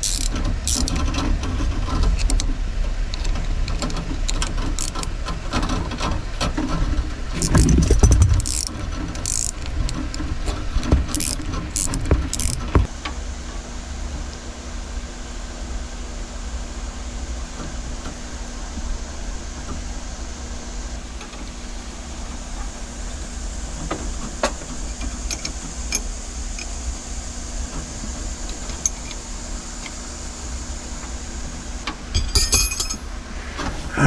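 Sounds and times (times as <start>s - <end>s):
wrench clicking on metal fittings: 0.0s - 1.0s, 3.2s - 5.1s, 7.4s - 9.7s, 11.1s - 12.8s
steady low hum: 6.7s - 14.3s, 33.1s - 34.0s.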